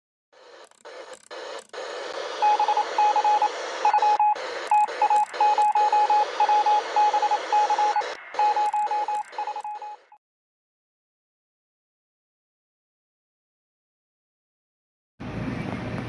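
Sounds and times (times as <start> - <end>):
radio static hiss: 0.4 - 10.2
morse code style beeps: 0.5 - 10.2.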